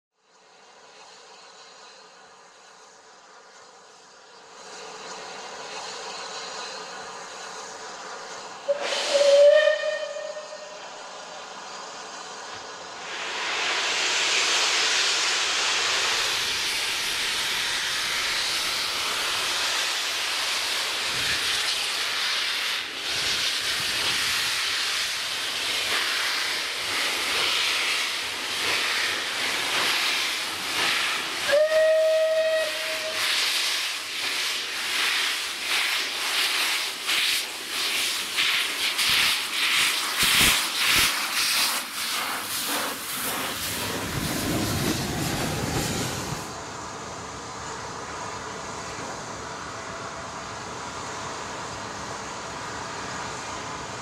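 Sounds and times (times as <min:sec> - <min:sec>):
steam hissing: 0:00.3 - 0:54.0
steam locomotive exhaust beats: 0:00.3 - 0:54.0
short whistle blast: 0:08.7 - 0:10.8, 0:31.5 - 0:33.3.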